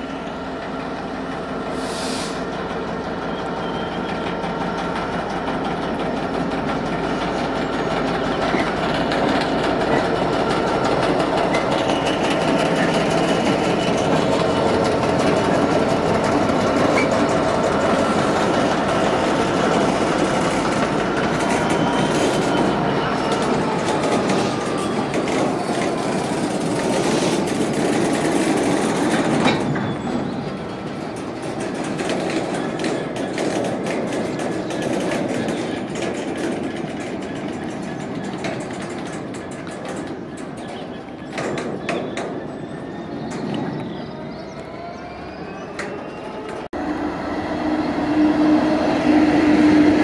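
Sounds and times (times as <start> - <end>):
freight train rolling past: 0.0 - 50.0
wheel clatter over track: 4.1 - 43.9.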